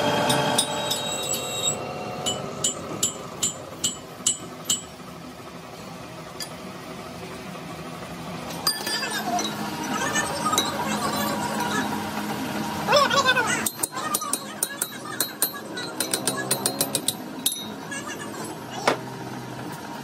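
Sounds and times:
machine noise: 0:00.0 - 0:20.0
metal clinking on metal: 0:13.6 - 0:17.8.

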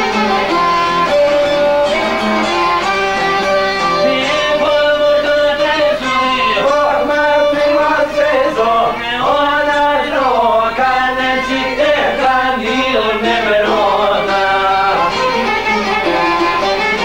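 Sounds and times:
instrumental accompaniment: 0:00.0 - 0:17.0
men singing folk song: 0:03.8 - 0:17.0.

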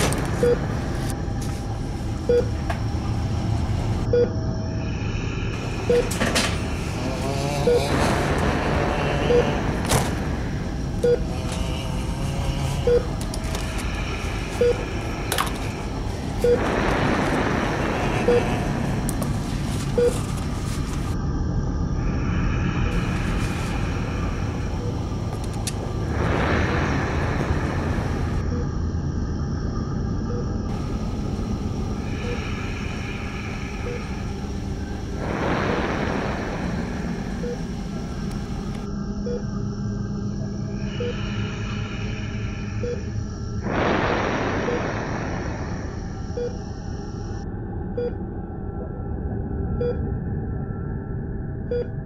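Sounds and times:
low rumble: 0:00.0 - 0:52.0
steady background hum: 0:00.0 - 0:52.0
hiss: 0:31.9 - 0:38.1, 0:40.9 - 0:46.0.

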